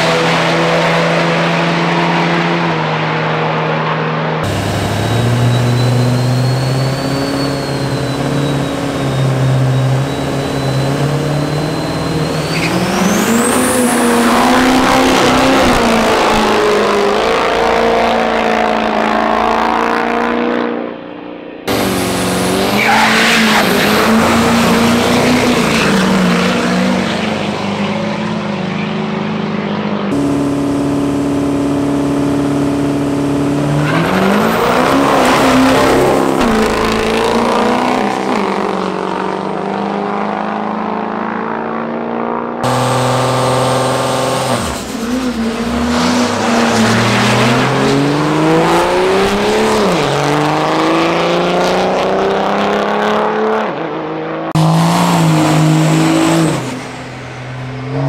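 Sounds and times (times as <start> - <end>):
diesel truck engines revving: 0.0 - 20.9, 21.6 - 40.9, 42.4 - 53.6, 54.2 - 58.0
turbo whistle: 4.5 - 15.6.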